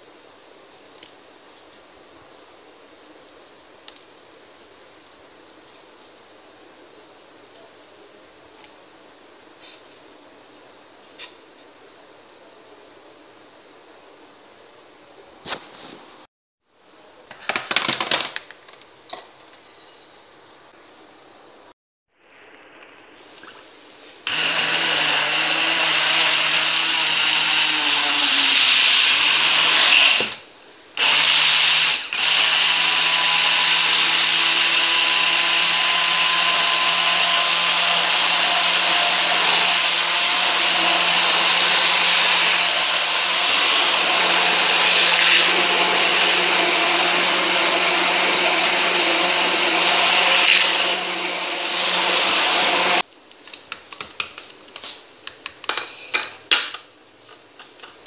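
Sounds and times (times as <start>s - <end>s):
stick blender motor whine: 24.3s - 30.4s, 31.0s - 53.0s.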